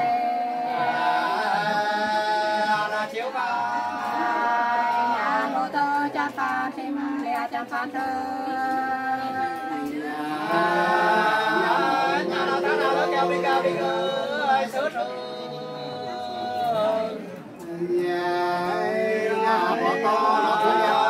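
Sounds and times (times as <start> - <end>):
group of voices singing unaccompanied: 0.0 - 21.0.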